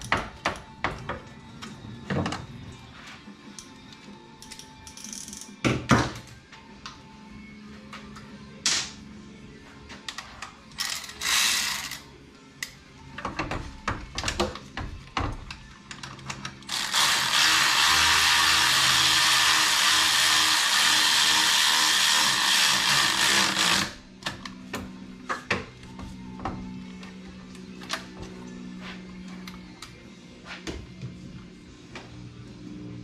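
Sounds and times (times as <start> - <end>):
power tool running: 16.7 - 24.0.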